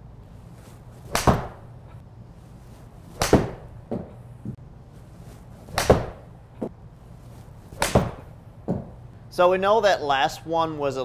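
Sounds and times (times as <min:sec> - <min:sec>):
golf club striking ball: 0:01.1 - 0:01.7, 0:05.7 - 0:06.7, 0:07.8 - 0:08.9.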